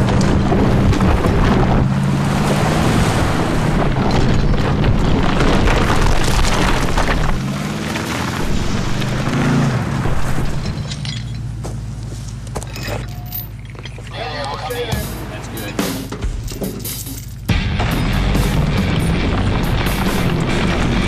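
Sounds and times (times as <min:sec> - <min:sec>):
truck engine under heavy load: 0:00.0 - 0:21.0
tyres churning through dirt: 0:00.0 - 0:21.0.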